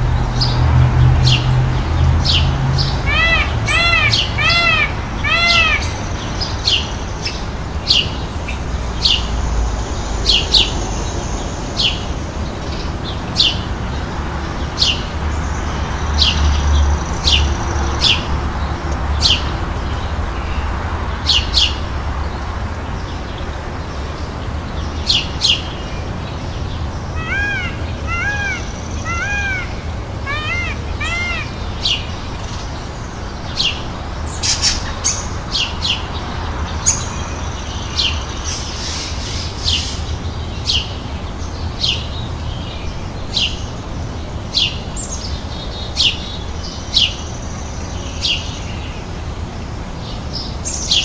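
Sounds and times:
steady background noise: 0.0s - 51.0s
peafowl wailing calls: 3.0s - 6.0s, 27.2s - 32.0s.

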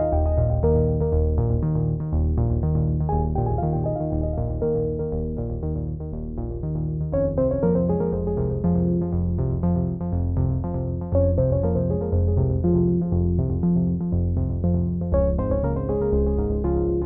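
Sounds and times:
keyboard notes: 0.0s - 1.9s, 3.1s - 5.9s
sustained bass line: 0.0s - 17.0s.

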